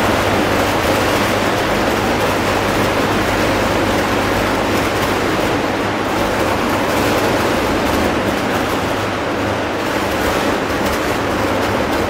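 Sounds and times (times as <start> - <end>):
electric arc furnace arcing: 0.0 - 9.5.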